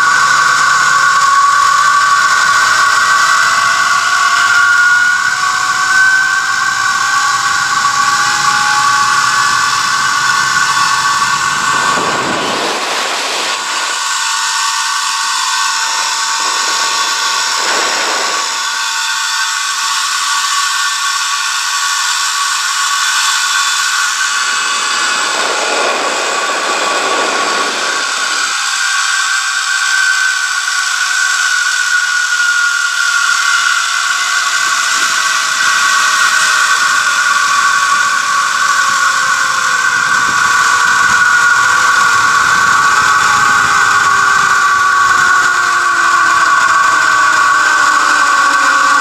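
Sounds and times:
wind gusts on microphone: 0:00.0 - 0:30.4, 0:31.2 - 0:49.0
zip-line pulleys whining on cable: 0:00.0 - 0:49.0.

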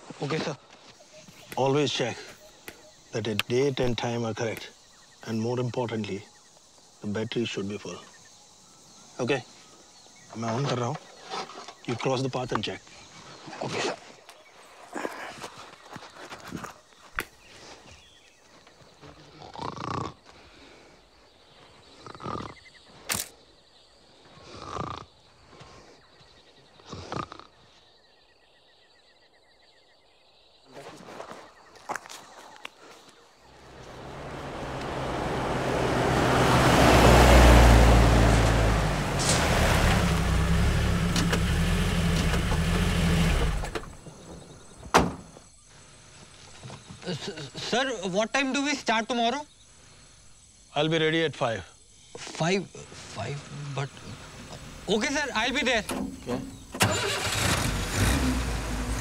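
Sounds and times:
jeep engine running: 0:33.6 - 0:44.0, 0:54.0 - 0:59.0.

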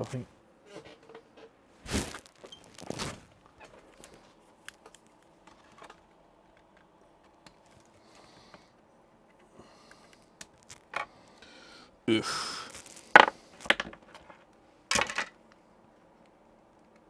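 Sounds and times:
clicks and rustles of plastic handling: 0:02.2 - 0:08.0, 0:09.9 - 0:11.2.

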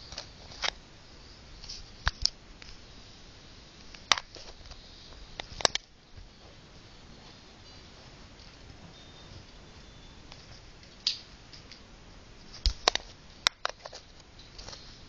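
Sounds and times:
fingers rustling on camera: 0:03.8 - 0:15.0.

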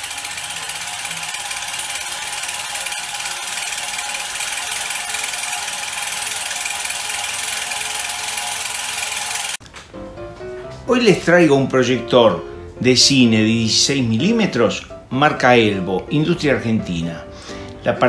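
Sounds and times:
film projector clatter: 0:00.0 - 0:09.6.

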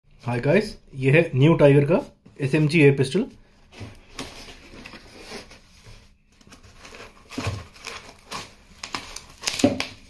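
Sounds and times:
cardboard rustling and scraping: 0:03.6 - 0:10.0.

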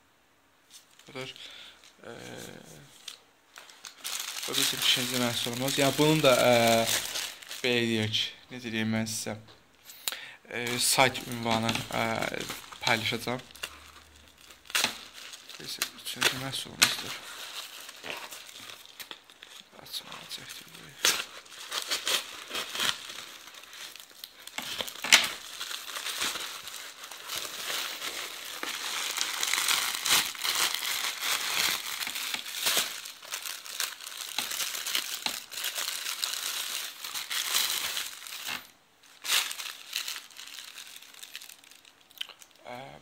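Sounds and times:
plastic bag crinkling: 0:00.7 - 0:09.3, 0:10.6 - 0:42.6
sharp plastic crack: 0:14.7 - 0:15.1.

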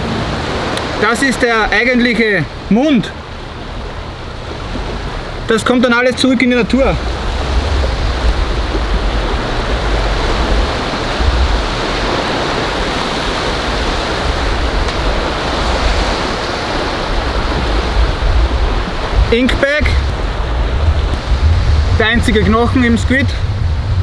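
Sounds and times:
surf washing onto a beach: 0:00.0 - 0:24.0
low wavering rumble: 0:06.9 - 0:12.0, 0:20.0 - 0:24.0.

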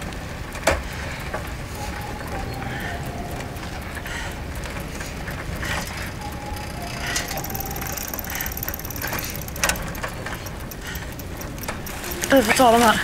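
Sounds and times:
bicycle tyres and chain rolling: 0:00.0 - 0:13.0
light ticking: 0:00.0 - 0:13.0
sharp click: 0:00.6 - 0:13.0.

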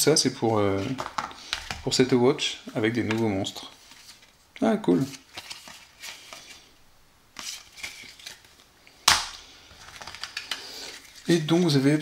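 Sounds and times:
cards rustling: 0:00.4 - 0:02.2, 0:02.8 - 0:06.7, 0:07.3 - 0:12.0
sharp card slap: 0:09.1 - 0:09.4.

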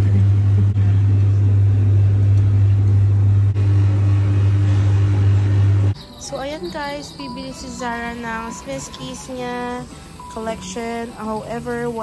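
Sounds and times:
loud low hum: 0:00.0 - 0:06.0.

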